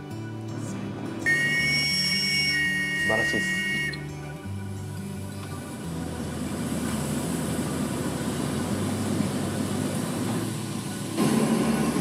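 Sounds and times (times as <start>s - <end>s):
miniature steam locomotive rumbling: 5.8s - 12.0s.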